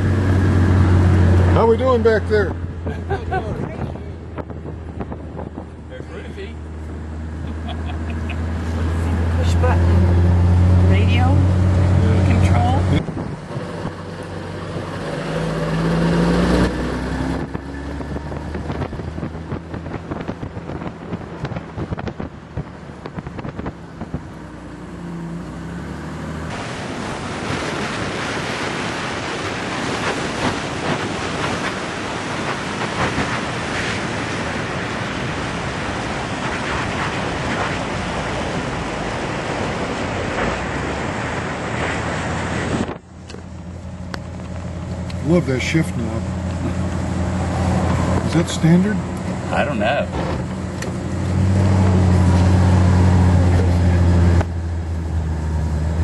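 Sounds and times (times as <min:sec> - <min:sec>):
wind rushing on microphone: 0:00.0 - 0:24.8, 0:26.4 - 0:43.6
car engine humming: 0:00.0 - 0:56.0.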